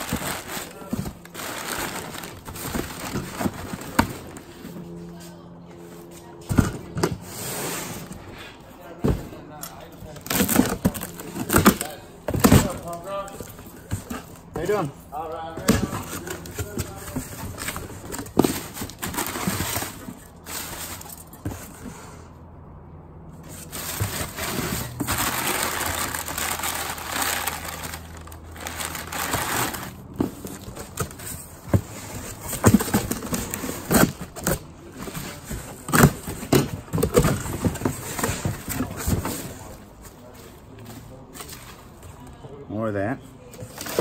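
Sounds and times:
items knocking and clunking: 0.0 - 4.8, 6.4 - 7.3, 10.1 - 22.0, 23.4 - 41.7.

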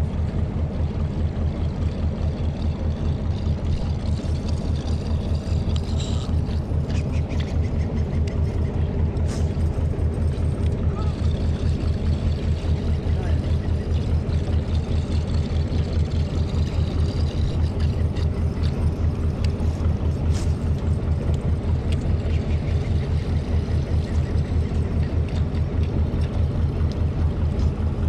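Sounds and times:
boat engine throbbing: 0.0 - 28.0.

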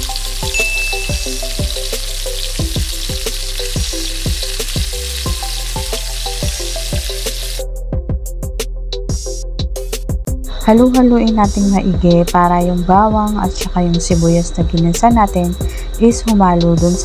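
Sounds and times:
chicken sizzling in hot oil: 0.0 - 7.7
background music with beat: 0.0 - 17.0.

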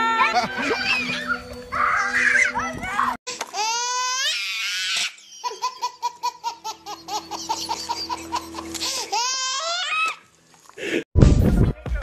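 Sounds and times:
baby laughing: 3.5 - 10.2.

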